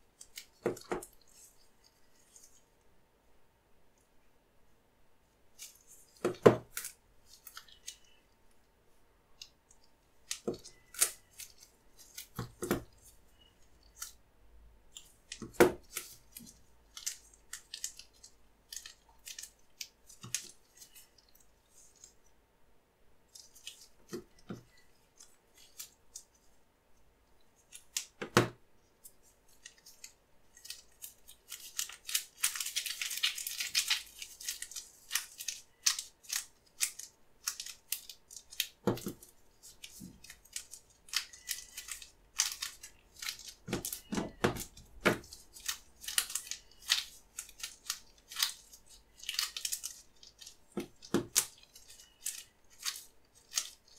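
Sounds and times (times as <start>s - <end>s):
crackly rustling of kneaded clay: 0.0s - 53.9s
nitrile gloves rustling: 23.3s - 53.9s.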